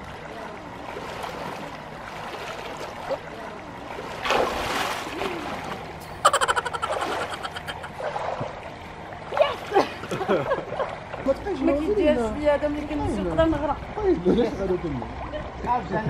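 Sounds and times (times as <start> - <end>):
pool water sloshing and splashing: 0.0 - 16.0.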